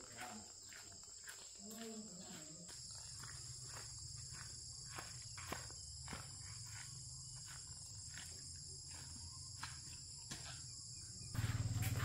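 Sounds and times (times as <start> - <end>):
insects chirping: 0.0 - 12.0
pulsing low hum: 11.2 - 12.0
low hum: 11.4 - 12.0.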